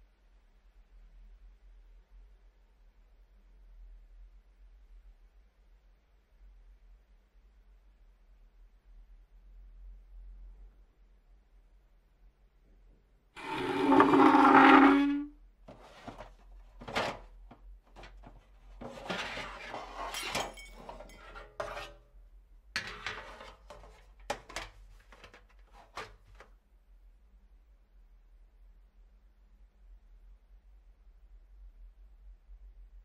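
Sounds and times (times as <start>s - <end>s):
sharp knocks and clinks: 20.1s - 21.7s.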